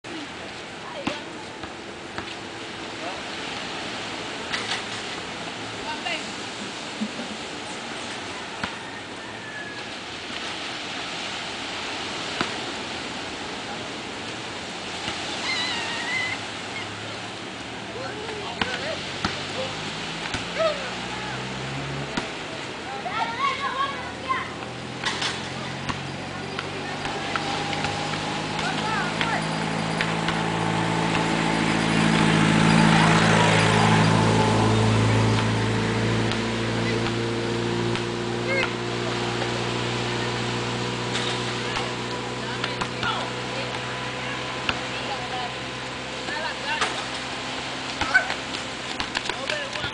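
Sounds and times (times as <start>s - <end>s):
wind: 0.0s - 49.9s
surf: 0.1s - 49.9s
motor engine humming: 23.9s - 49.9s.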